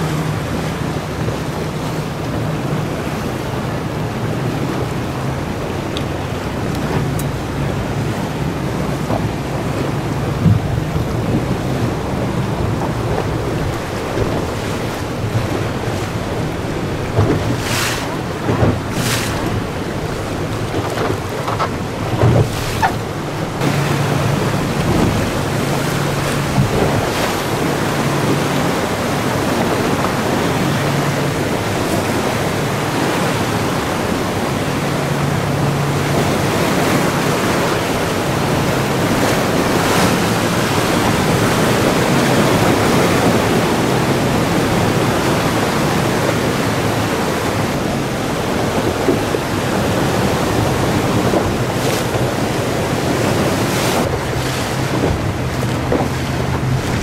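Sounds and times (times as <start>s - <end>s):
outboard motor running: 0.0s - 57.0s
waves and splashing water: 0.0s - 57.0s
wind on microphone: 0.0s - 57.0s
sharp water slaps: 12.8s - 31.0s.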